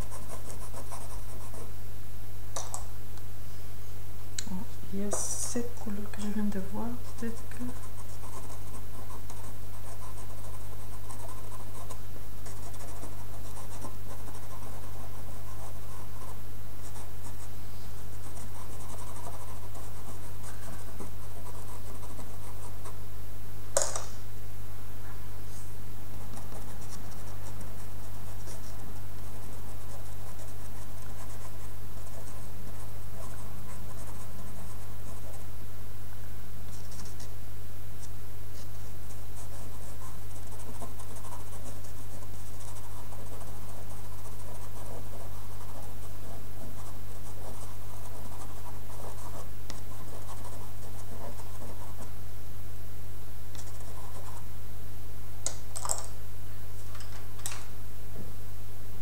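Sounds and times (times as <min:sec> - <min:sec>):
pencil scratching on paper: 0:00.0 - 0:01.7, 0:06.3 - 0:23.0, 0:26.3 - 0:35.4, 0:39.4 - 0:52.1.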